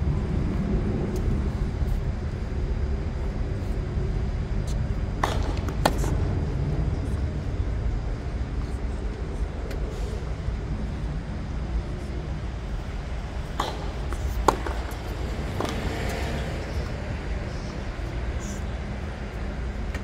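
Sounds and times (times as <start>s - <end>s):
low outdoor rumble: 0.0s - 20.0s
tennis racket hitting ball: 13.5s - 16.3s.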